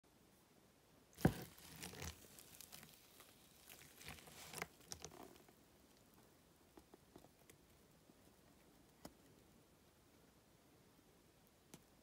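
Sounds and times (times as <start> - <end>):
wet paste pouring onto foam: 1.2 - 5.0.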